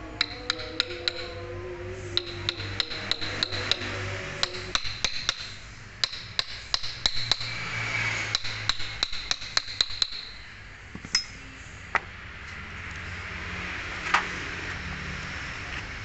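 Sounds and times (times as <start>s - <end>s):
hammer tapping steel socket: 2.2s - 7.5s.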